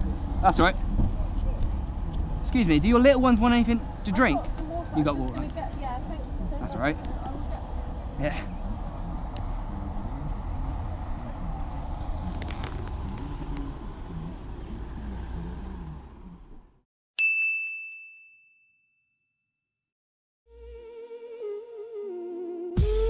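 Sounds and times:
bright ding: 17.2s - 19.2s
music: 20.5s - 23.0s.

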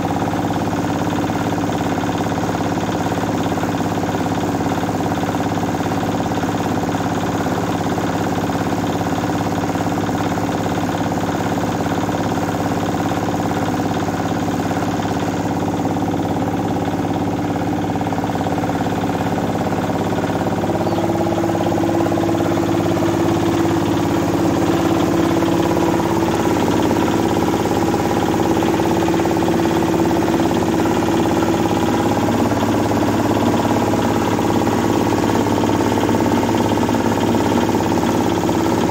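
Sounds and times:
diesel engine running: 0.0s - 38.9s
rice mill humming: 11.8s - 38.9s.

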